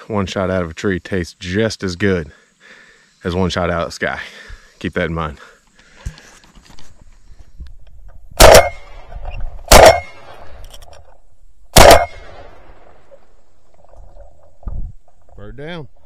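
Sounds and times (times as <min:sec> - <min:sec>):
shotgun shots with echo: 0:08.4 - 0:09.0, 0:09.7 - 0:10.4, 0:11.7 - 0:12.8.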